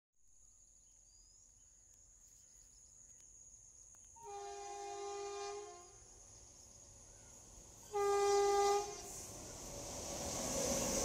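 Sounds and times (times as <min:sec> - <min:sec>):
train horn chord: 0:04.2 - 0:06.0, 0:07.9 - 0:09.3.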